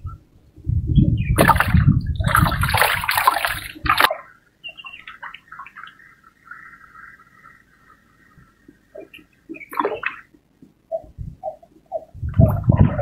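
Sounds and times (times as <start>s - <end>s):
water splashing and sloshing: 1.4s - 10.8s.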